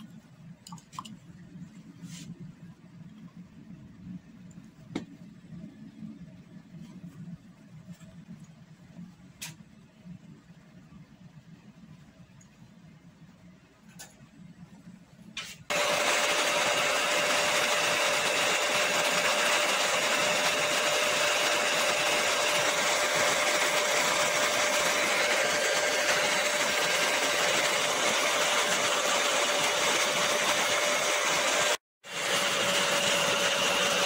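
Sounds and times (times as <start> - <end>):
hair dryer running: 15.7 - 34.0.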